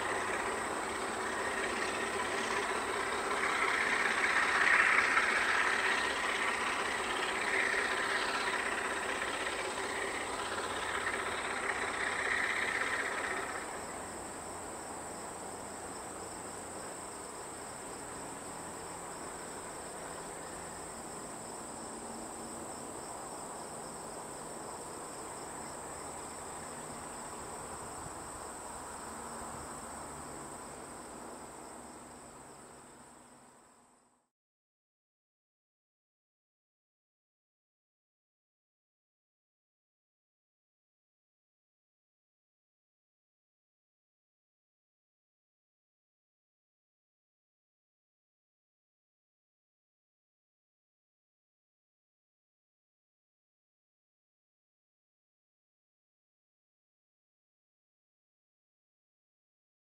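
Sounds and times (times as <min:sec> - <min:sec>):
diesel locomotive engine: 0:00.0 - 0:34.1.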